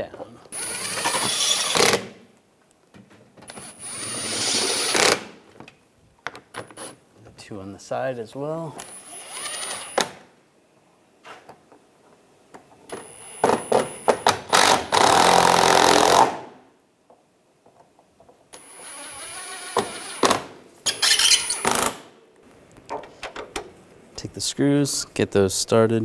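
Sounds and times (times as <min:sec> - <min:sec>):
impact driver driving screws: 0:00.5 - 0:02.1, 0:03.5 - 0:05.3, 0:08.8 - 0:10.2, 0:13.0 - 0:16.4, 0:18.6 - 0:22.1.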